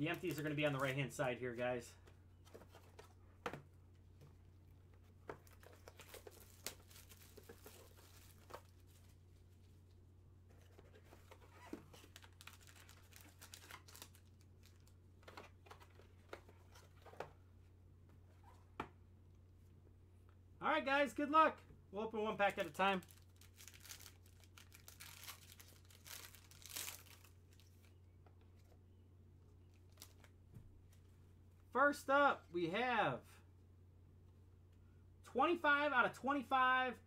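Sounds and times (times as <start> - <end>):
low steady hum: 0.0 - 37.0
cardboard boxes crinkling and tearing: 23.1 - 27.7.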